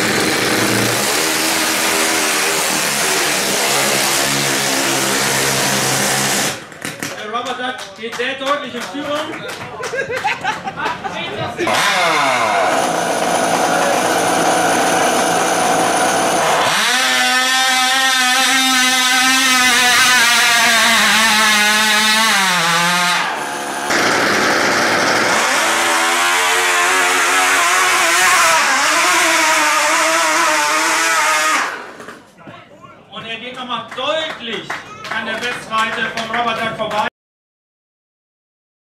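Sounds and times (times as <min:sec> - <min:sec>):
high buzzing model engine: 0:00.0 - 0:06.6, 0:11.7 - 0:32.2.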